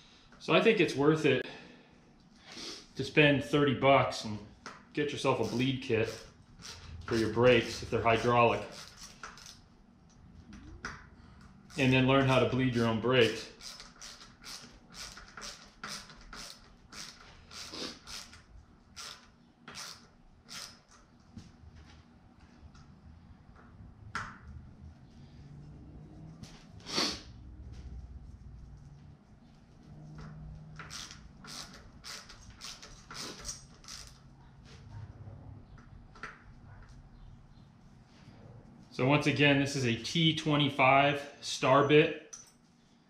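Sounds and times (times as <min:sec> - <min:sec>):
bit driver scraping strokes: 0:05.3 - 0:09.5.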